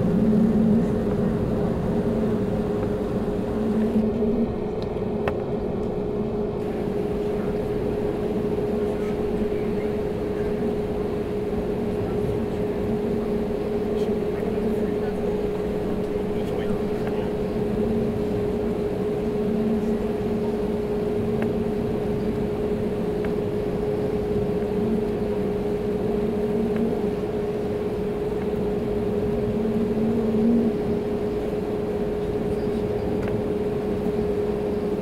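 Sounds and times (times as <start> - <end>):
jet engines idling in airliner cabin: 0.0 - 35.0.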